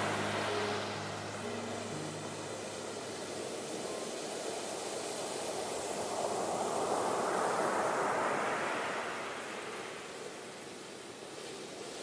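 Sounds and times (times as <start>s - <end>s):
ocean surf breaking on a beach: 0.0s - 12.0s.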